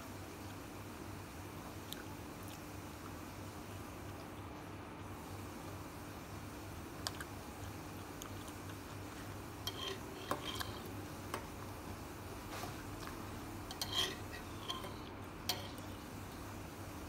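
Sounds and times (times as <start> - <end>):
faint steady hum: 0.0 - 17.0
fork clinking on ceramic bowl: 9.7 - 10.9, 13.7 - 15.8.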